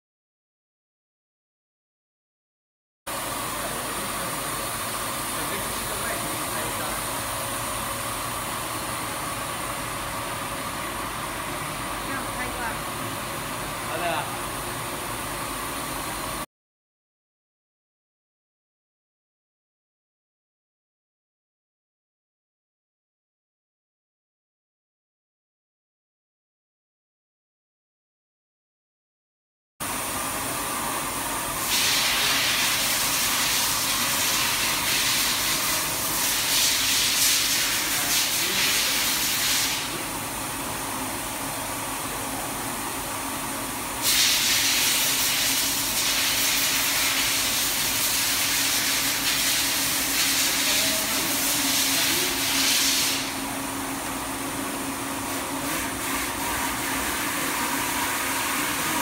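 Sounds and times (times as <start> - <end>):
strong machine hiss: 3.1 - 9.9, 31.5 - 40.3, 43.9 - 53.6.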